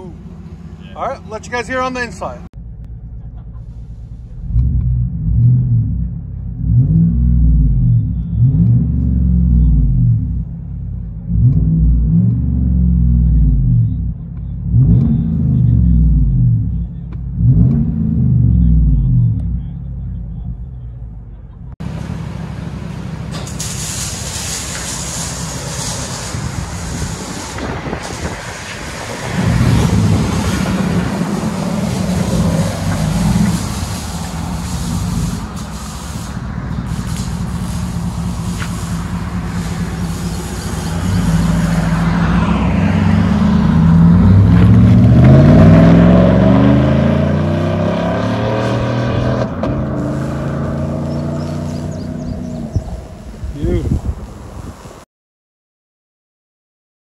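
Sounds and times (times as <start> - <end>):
truck engine accelerating: 0.0 - 55.0.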